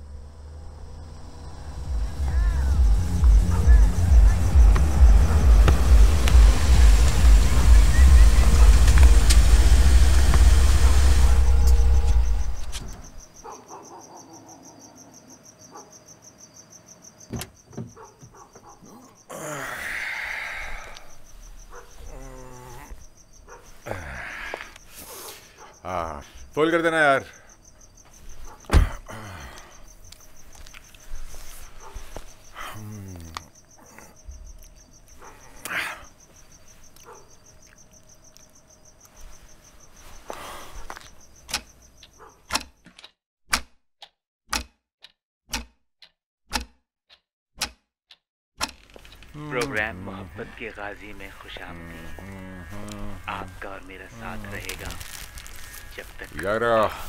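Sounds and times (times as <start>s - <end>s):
rush of noise: 0.0s - 12.8s
deep rumble: 0.0s - 13.0s
crickets chirping: 0.0s - 42.5s, 48.9s - 57.0s
sharp click: 41.5s - 41.7s, 42.5s - 49.2s
creaks: 48.6s - 49.8s, 51.4s - 57.0s.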